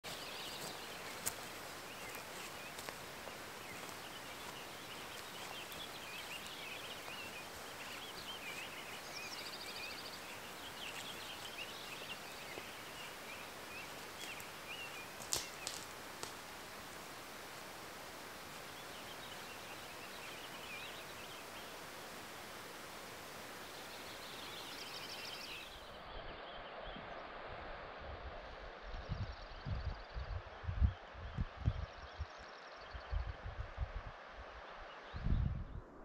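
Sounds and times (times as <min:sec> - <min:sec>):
outdoor hiss: 0:00.0 - 0:26.0
songbirds singing: 0:00.0 - 0:27.3.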